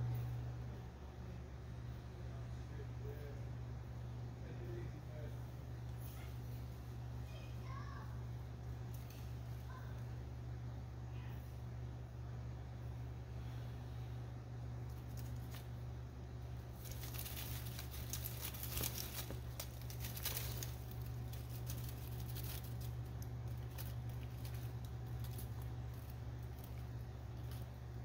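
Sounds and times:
steady low hum: 0:00.0 - 0:28.0
dry leaves rustling and crackling: 0:14.8 - 0:28.0.

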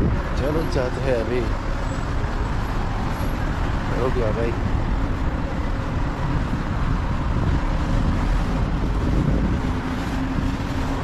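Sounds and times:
city road traffic rumble: 0:00.0 - 0:11.0
wind buffeting microphone: 0:00.0 - 0:11.0.

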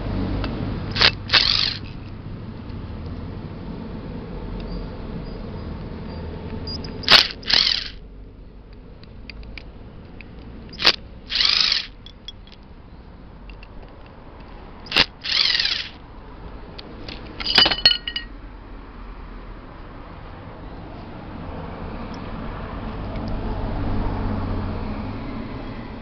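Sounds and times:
electric impact driver whirring: 0:00.9 - 0:01.9, 0:07.0 - 0:08.0, 0:10.8 - 0:12.0, 0:14.9 - 0:16.0.

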